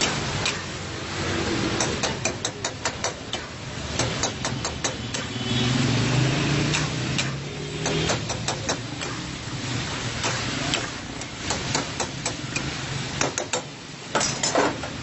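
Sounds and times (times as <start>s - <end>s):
chicken sizzling: 8.8s - 14.1s.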